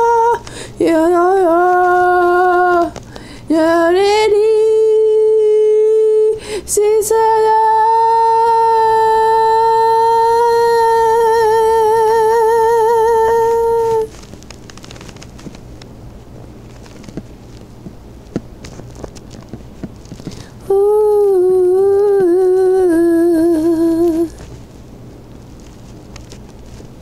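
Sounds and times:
high voice singing unaccompanied: 0.0 - 14.2, 20.6 - 24.4.

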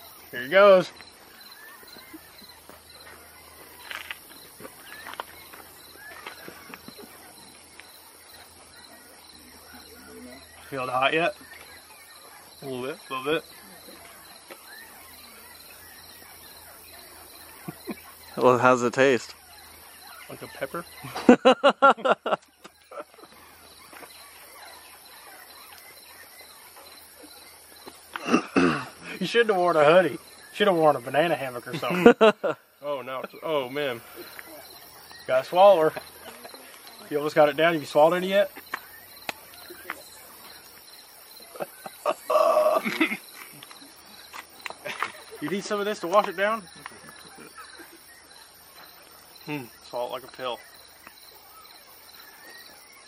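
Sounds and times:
birds chirping: 0.0 - 53.0
faint outdoor background: 0.0 - 53.0
pulsing insect chirr: 0.0 - 53.0
person laughing: 21.0 - 23.3, 31.7 - 32.6, 41.5 - 43.6.

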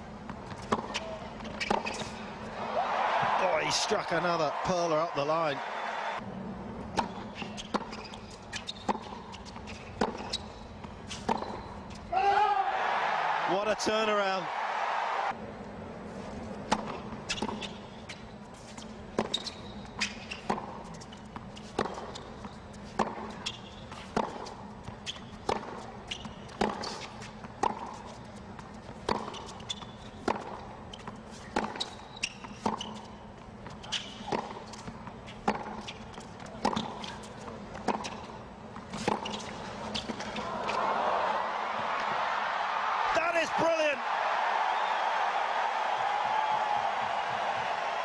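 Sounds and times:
hushed stadium crowd: 2.2 - 6.2, 12.1 - 15.4, 39.7 - 48.0
racket hitting tennis ball: 19.1 - 28.1, 29.0 - 33.0, 33.9 - 41.0.

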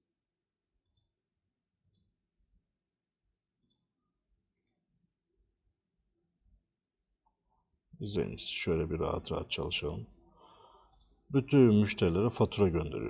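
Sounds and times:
computer mouse clicks: 1.8 - 2.1, 3.6 - 3.9, 10.9 - 11.2.

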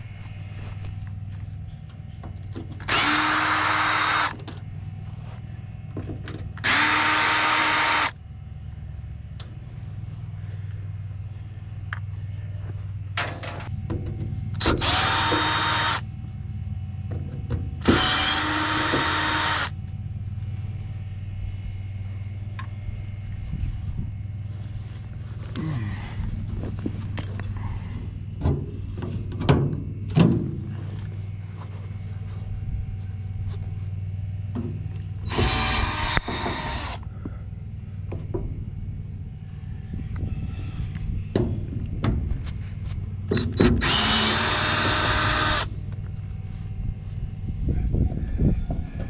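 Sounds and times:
cordless drill running: 2.9 - 4.4, 6.6 - 8.2, 14.6 - 16.0, 17.8 - 19.7, 35.2 - 37.0, 43.8 - 45.7.

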